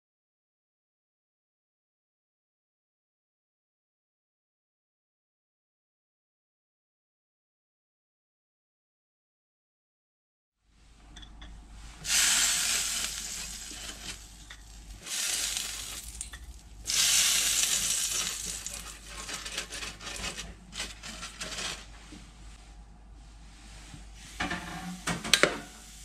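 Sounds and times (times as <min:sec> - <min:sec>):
soft crackling: 0:11.8 - 0:24.4
butter sizzling on hot plates: 0:12.0 - 0:22.1, 0:24.2 - 0:26.0.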